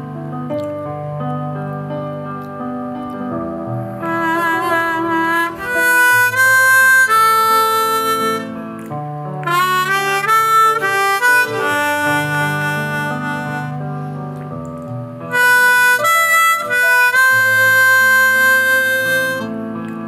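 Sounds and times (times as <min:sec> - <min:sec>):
harmonica playing slow melody: 0:03.8 - 0:14.4, 0:15.3 - 0:19.6.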